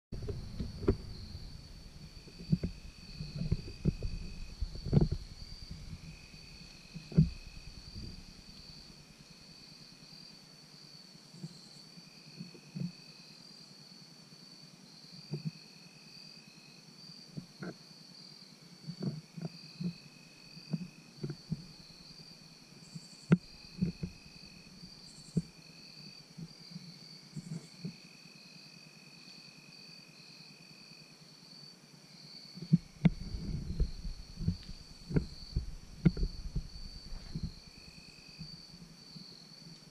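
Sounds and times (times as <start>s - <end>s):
low noise: 0.0s - 11.8s, 32.6s - 39.9s
lower insect song: 0.1s - 39.9s
small knocks: 0.2s - 1.6s, 2.2s - 6.2s, 6.9s - 8.6s, 32.6s - 38.6s
insect high trill: 0.2s - 10.4s, 32.3s - 39.8s.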